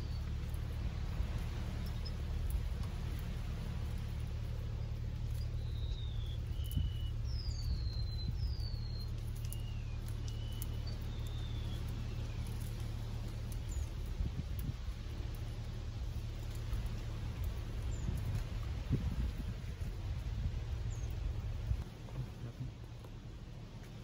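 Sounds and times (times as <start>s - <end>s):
steady low rumble: 0.0s - 24.0s
bird whistling calls: 4.8s - 13.0s.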